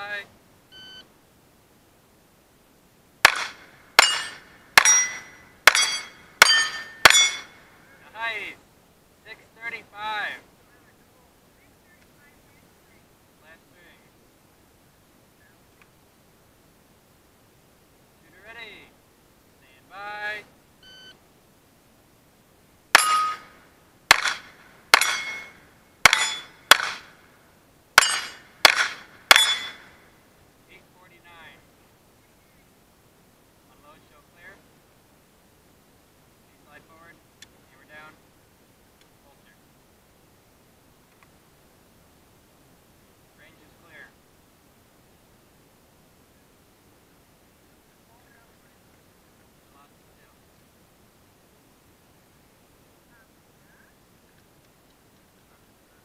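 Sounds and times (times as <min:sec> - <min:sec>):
pistol shots: 0:03.2 - 0:07.5, 0:22.9 - 0:23.5, 0:24.1 - 0:27.2, 0:28.0 - 0:30.0
steel plate ringing: 0:03.2 - 0:07.7, 0:22.9 - 0:27.1, 0:28.0 - 0:30.0.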